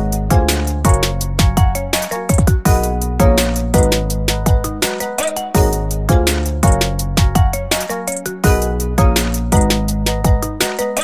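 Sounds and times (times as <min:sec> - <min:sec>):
electronic music with steady beat: 0:00.0 - 0:11.0.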